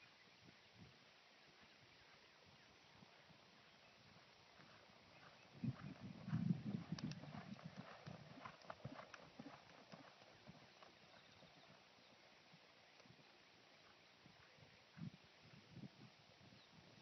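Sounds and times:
horse hoofbeats: 4.2 - 11.9.

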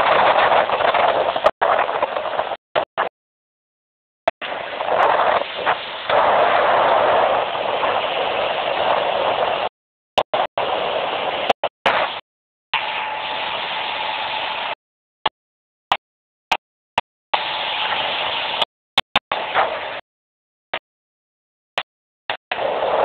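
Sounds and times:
wind on microphone: 0.0 - 3.1, 4.3 - 9.7, 10.3 - 12.2, 22.5 - 23.0
speedboat running: 4.4 - 9.7, 12.8 - 14.8, 17.3 - 18.6.

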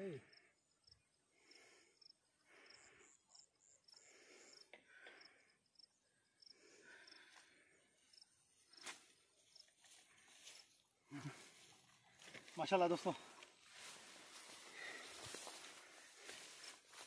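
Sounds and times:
insect chirping: 0.0 - 12.5.

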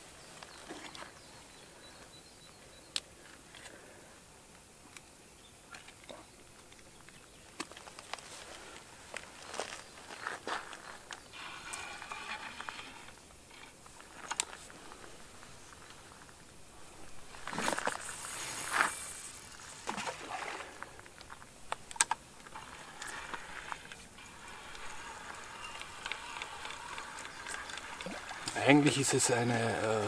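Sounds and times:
fishing line hissing off reel: 11.2 - 13.7, 17.3 - 21.1, 22.4 - 30.0.

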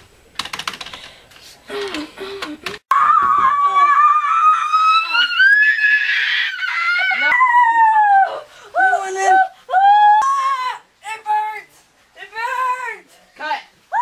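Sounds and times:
boy screaming: 2.9 - 10.8.

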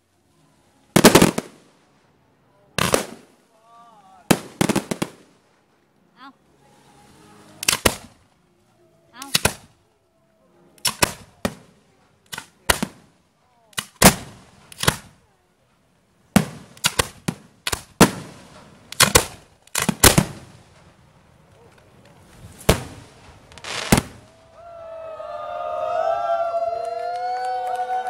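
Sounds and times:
fireworks bangs: 1.0 - 1.8, 2.8 - 3.4, 4.2 - 5.7, 10.8 - 13.2, 13.8 - 15.2, 16.3 - 24.8.

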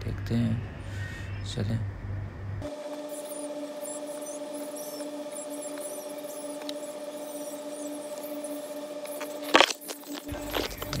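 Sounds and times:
electrical hum: 0.0 - 11.0
blade scraping with high squeaks: 2.6 - 11.0.

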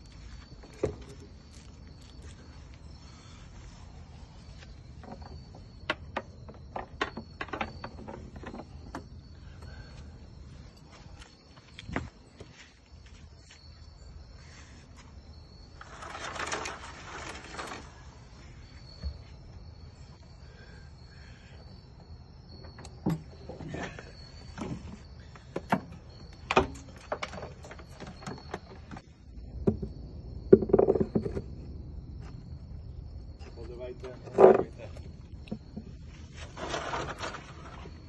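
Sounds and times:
high-pitched insect trill: 0.0 - 38.0
rustle: 36.0 - 38.0.

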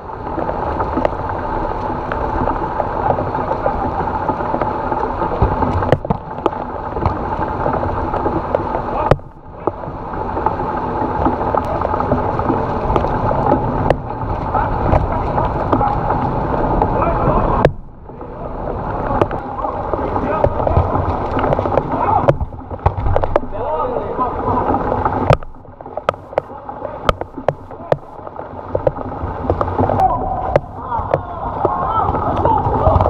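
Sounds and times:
torrential rain pouring: 0.0 - 33.0
small taps: 25.2 - 31.8.

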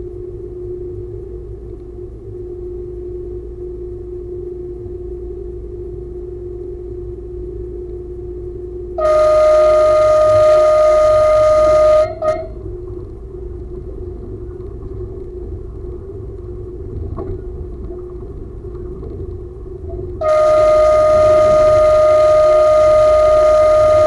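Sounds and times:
train horn: 9.0 - 12.7, 20.2 - 24.0
train rumbling: 9.0 - 24.0.

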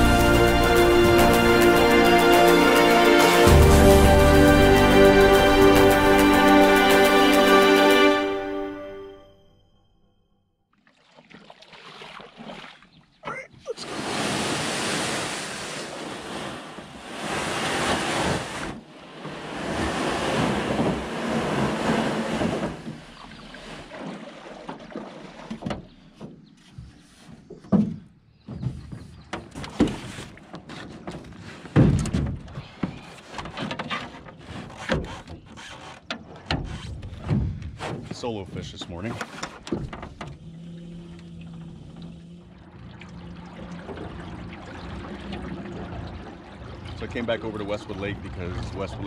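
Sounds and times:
rushing water: 0.0 - 9.1, 10.8 - 25.8, 38.1 - 49.0
water lapping: 10.7 - 31.8, 32.4 - 49.0
gear knocking in boat: 17.8 - 47.4.

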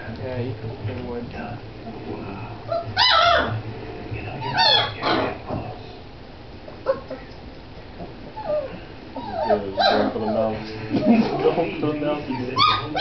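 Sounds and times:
puppies whimpering and yelping: 2.7 - 3.6, 4.4 - 5.3, 6.8 - 7.4, 8.2 - 11.3, 12.2 - 13.0.

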